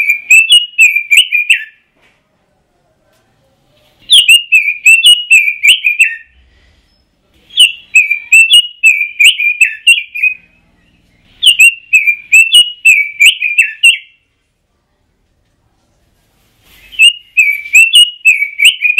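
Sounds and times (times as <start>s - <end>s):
bird singing fluty warbling phrases: 0.0s - 1.9s, 4.0s - 14.3s, 16.8s - 18.9s.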